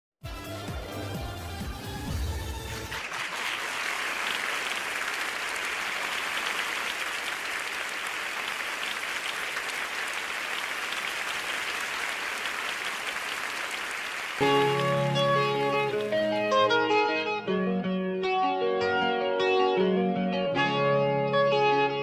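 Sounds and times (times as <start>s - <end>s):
audience applauding: 2.7s - 16.5s.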